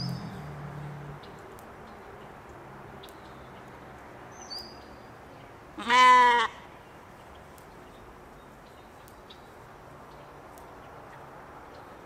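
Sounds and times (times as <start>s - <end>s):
sheep bleating: 5.8s - 6.6s.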